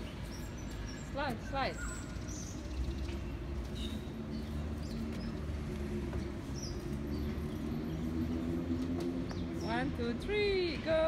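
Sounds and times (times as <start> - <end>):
bird chirps: 0.0 - 5.5.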